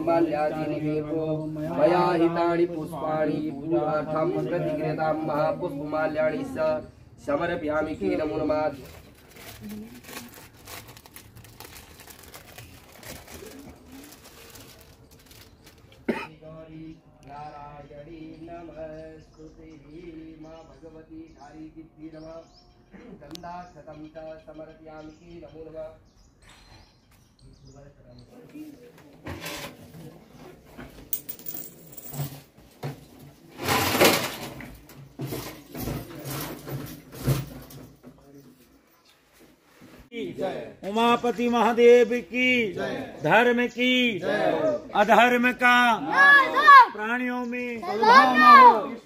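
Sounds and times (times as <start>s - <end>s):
tinsel cloth rustling and crinkling: 8.8s - 16.1s
objects clicking and clinking: 31.0s - 32.5s.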